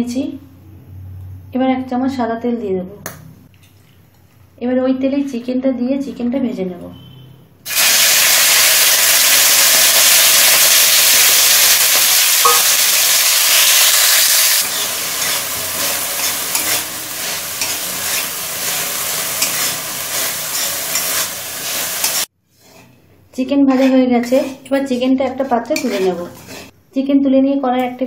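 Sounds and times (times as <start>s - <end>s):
chicken sizzling in hot oil: 7.7s - 22.3s
metal spatula scraping a pan: 13.3s - 26.8s.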